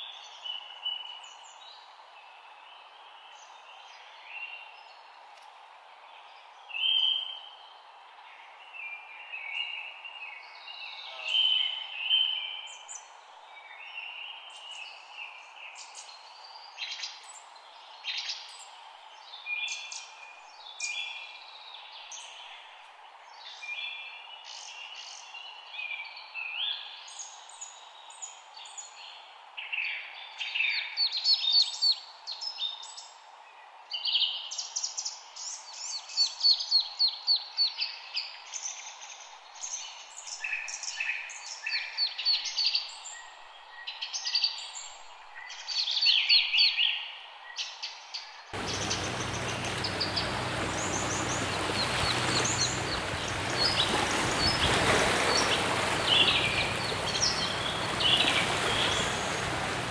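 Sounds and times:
songbirds chirping and singing: 0:48.6 - 0:59.9
steady background hiss: 0:48.6 - 0:59.9.

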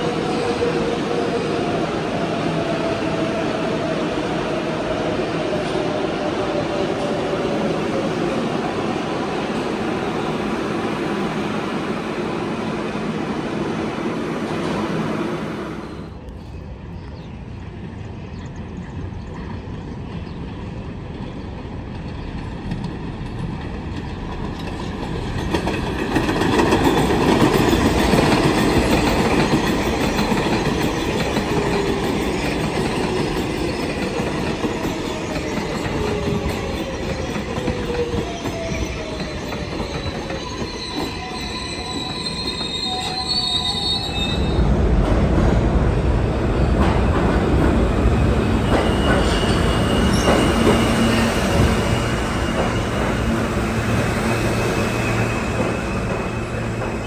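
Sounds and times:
elevated train passing: 0:00.0 - 0:57.0
subway train moving underground: 0:00.0 - 0:57.0
train wheel clatter: 0:21.9 - 0:41.4, 0:46.7 - 0:54.2.

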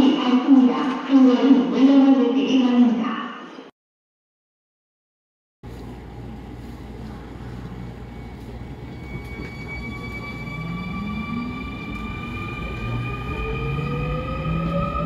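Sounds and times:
low train running rumble: 0:05.7 - 0:15.0
train motors whining rising pitch: 0:08.2 - 0:15.0.

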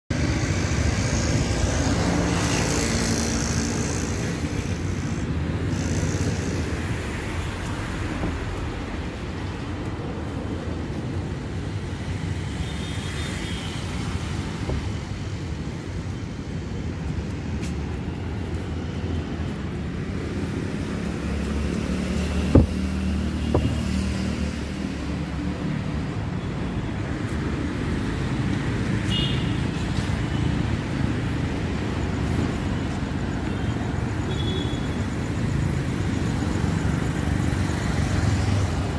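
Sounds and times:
vehicle engine: 0:00.1 - 0:10.4, 0:16.9 - 0:26.2
cars driving past: 0:00.1 - 0:12.6, 0:13.8 - 0:33.5
sharp knock: 0:22.4 - 0:22.8.

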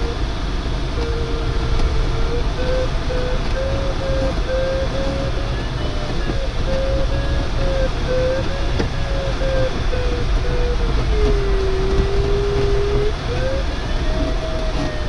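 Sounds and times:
variometer beeping: 0:01.0 - 0:15.0.

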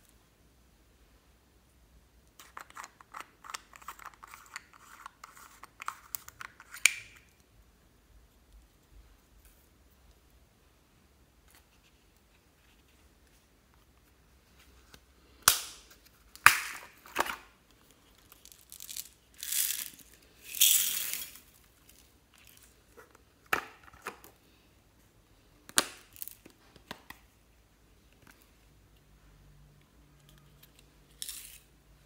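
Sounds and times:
beads poured into a bowl: 0:18.4 - 0:22.0.

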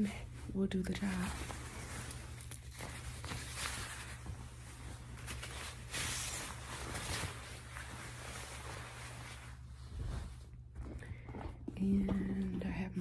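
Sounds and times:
jacket fabric rustling: 0:00.0 - 0:11.2.

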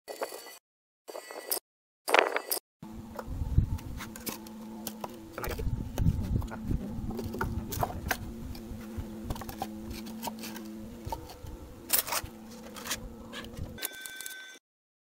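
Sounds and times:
steady low hum: 0:02.8 - 0:13.8.

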